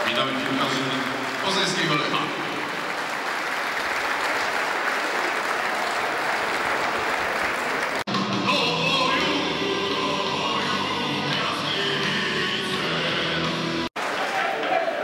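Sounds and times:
stadium crowd applauding: 0:00.0 - 0:08.1, 0:14.0 - 0:15.0
music: 0:08.1 - 0:13.9.

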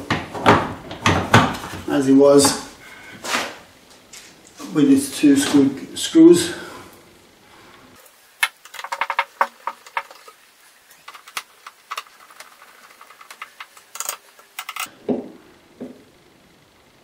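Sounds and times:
small plastic rattles: 0:08.4 - 0:10.4, 0:11.0 - 0:14.9.

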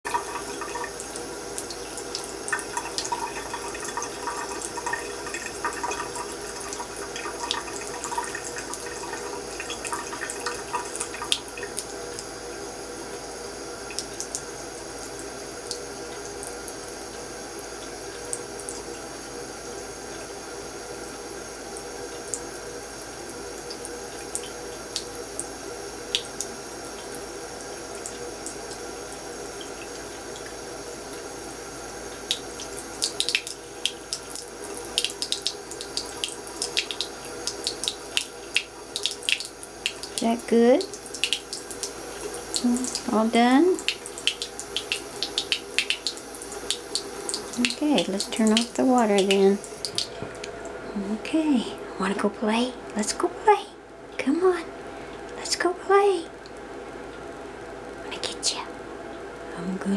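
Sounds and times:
faucet water running into sink: 0:00.0 - 0:50.8
small splashes and clicks: 0:43.8 - 0:50.7.

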